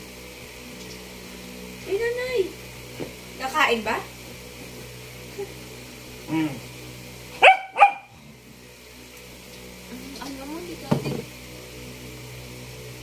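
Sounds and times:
dog barking: 7.4s - 8.2s.

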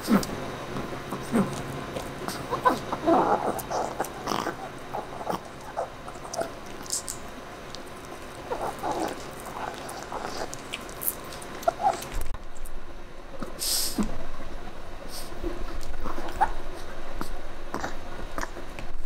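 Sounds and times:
dog gnawing bone: 0.1s - 12.4s.

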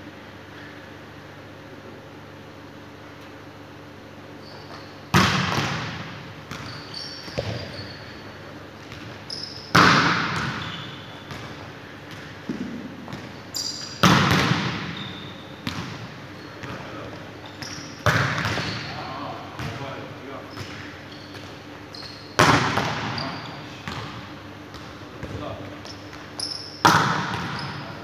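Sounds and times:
sneakers squeaking on court: 4.3s - 28.0s
volleyball struck hard: 5.1s - 6.6s, 9.7s - 10.6s, 14.0s - 15.0s, 26.8s - 27.6s
ball bouncing on floor: 6.5s - 7.8s, 11.3s - 13.3s, 24.7s - 27.7s.

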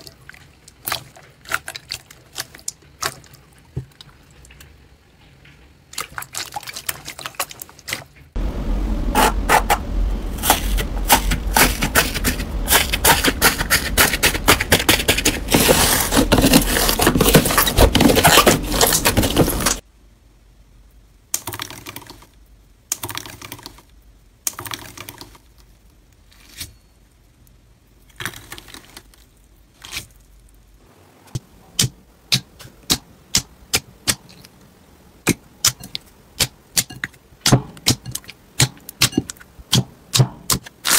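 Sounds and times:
slime crackling and squelching: 0.0s - 4.6s
foil crinkling: 10.4s - 19.8s.

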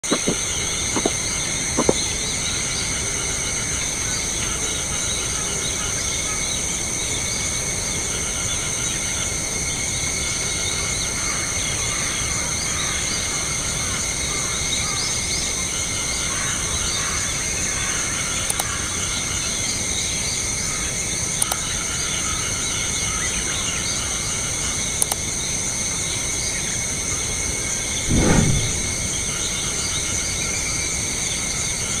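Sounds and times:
insect chorus: 0.0s - 32.0s
brief low rumble: 28.0s - 29.5s.

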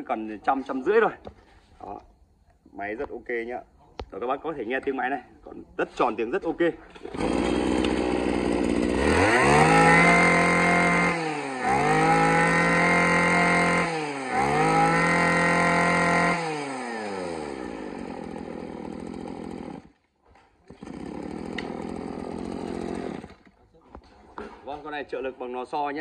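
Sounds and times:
brush cutter engine revving and idling: 6.9s - 20.0s, 20.7s - 23.6s.

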